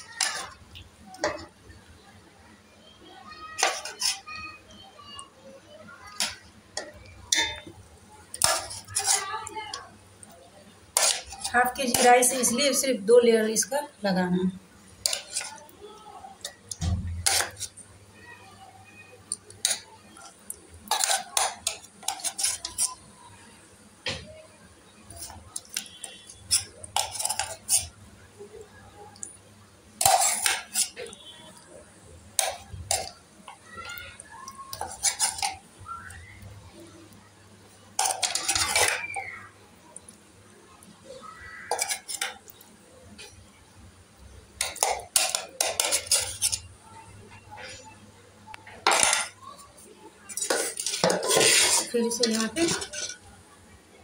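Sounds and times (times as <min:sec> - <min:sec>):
metal spoon scraping a pot: 0:00.0 - 0:00.6, 0:03.6 - 0:04.3, 0:06.2 - 0:07.7, 0:08.3 - 0:09.4, 0:10.9 - 0:12.7, 0:15.0 - 0:15.6, 0:17.2 - 0:17.8, 0:20.9 - 0:23.0, 0:25.1 - 0:28.0, 0:30.0 - 0:31.6, 0:34.7 - 0:35.6, 0:38.0 - 0:39.1, 0:41.7 - 0:42.5, 0:44.6 - 0:46.7, 0:48.8 - 0:49.4, 0:50.3 - 0:53.3.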